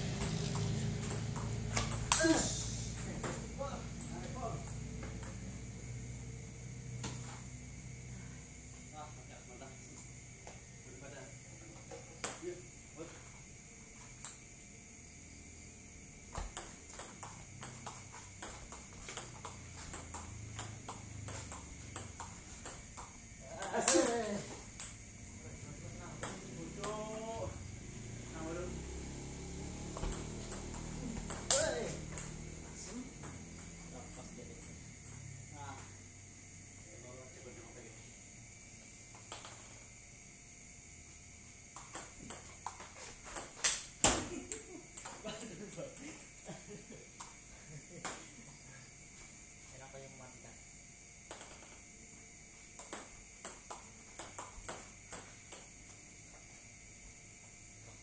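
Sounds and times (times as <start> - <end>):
table tennis ball clicking: 16.6 - 24.0, 24.8 - 25.0, 26.2 - 27.0, 30.0 - 32.4, 33.2 - 34.8, 51.3 - 51.8.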